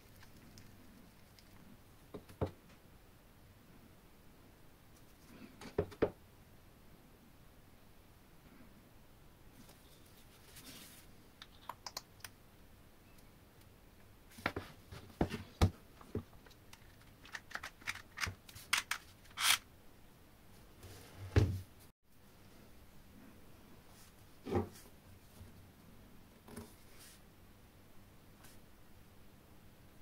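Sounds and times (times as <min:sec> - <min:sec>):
small parts clicking and knocking: 0:16.4 - 0:19.6.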